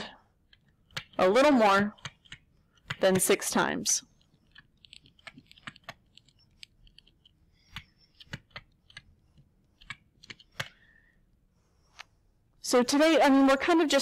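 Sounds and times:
stylus tapping on tablet screen: 0:01.9 - 0:10.8.

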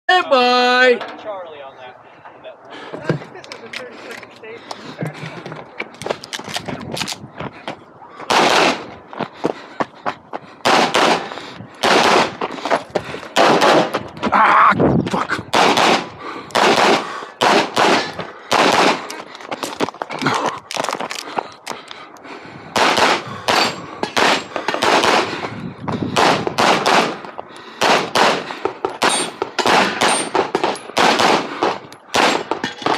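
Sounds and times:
pistol firing rapid shots: 0:08.3 - 0:08.8, 0:10.6 - 0:12.4, 0:13.4 - 0:13.9, 0:15.5 - 0:19.1, 0:22.8 - 0:25.4, 0:26.2 - 0:32.9.

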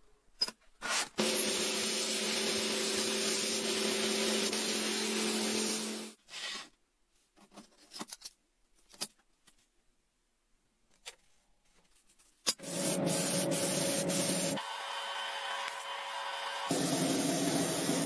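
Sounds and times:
air nozzle hissing: 0:12.6 - 0:14.6.

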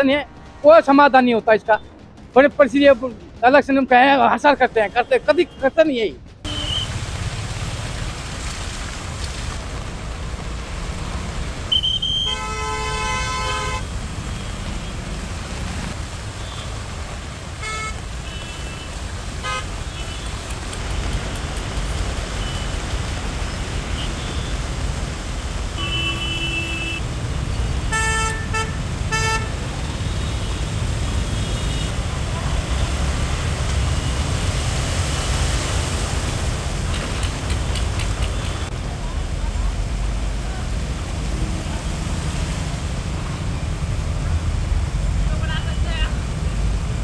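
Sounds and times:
road traffic rumble: 0:00.0 - 0:47.0
vehicle horns honking: 0:06.5 - 0:06.9, 0:11.7 - 0:15.0, 0:17.6 - 0:20.4, 0:25.8 - 0:27.0, 0:27.9 - 0:32.0.

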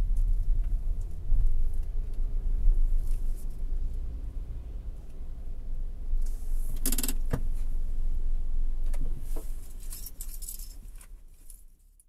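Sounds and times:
car cabin rumble: 0:00.0 - 0:09.8
sharp clicks: 0:06.8 - 0:07.3
jingling rattles: 0:09.8 - 0:11.0.

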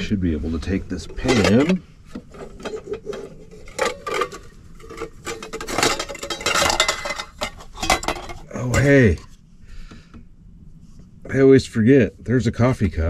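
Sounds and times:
cookware clattering and scraping: 0:01.0 - 0:09.3.

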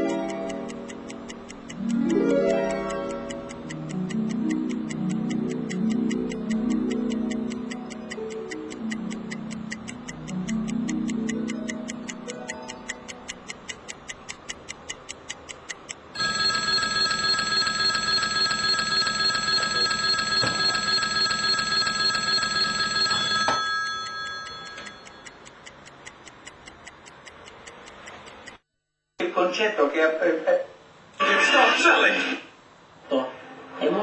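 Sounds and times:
clock ticking: 0:00.0 - 0:28.6
alarm clock ringing: 0:16.2 - 0:25.4.

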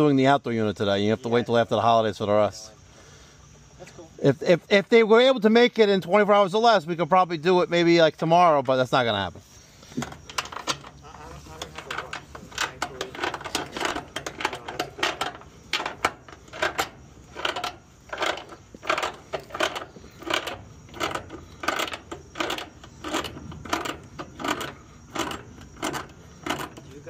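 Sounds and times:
ratcheting wrench clicking: 0:10.0 - 0:27.0.

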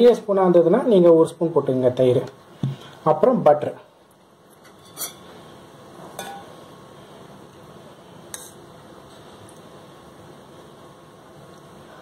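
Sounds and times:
metal spoon clinking on bowls: 0:04.6 - 0:05.2, 0:06.2 - 0:06.5.

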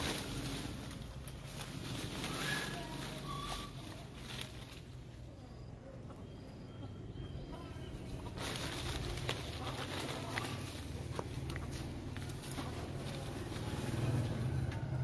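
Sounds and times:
leaves rustling with snaps: 0:00.0 - 0:05.2, 0:08.1 - 0:15.0
faint bird chirps: 0:05.1 - 0:09.0.

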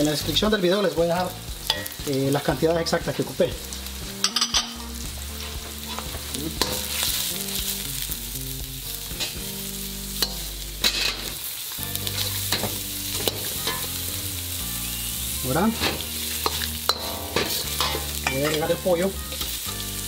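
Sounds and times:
garlic sizzling in hot oil: 0:00.0 - 0:20.0
metal ladle scraping wok: 0:01.6 - 0:02.0, 0:04.2 - 0:07.4, 0:10.2 - 0:11.4, 0:12.0 - 0:14.2, 0:15.6 - 0:19.6.

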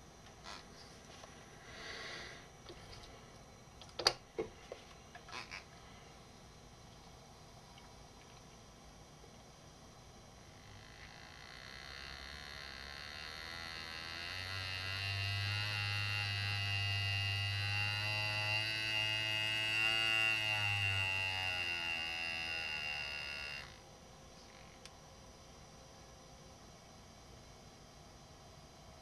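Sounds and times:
pneumatic engraver buzzing: 0:10.5 - 0:23.8.

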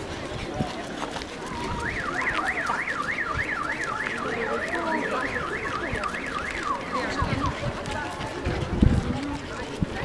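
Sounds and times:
car alarm warbling siren: 0:01.4 - 0:07.6.

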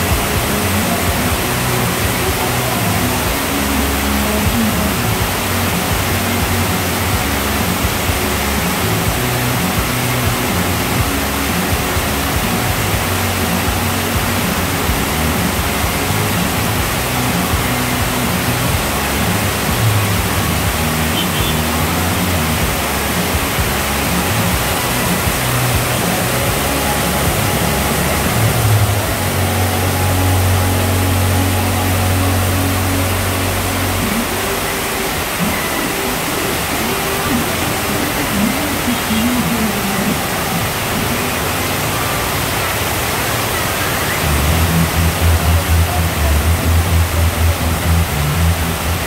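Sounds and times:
heavy rain on flooded road: 0:00.0 - 0:49.0
low hum: 0:44.2 - 0:49.0.

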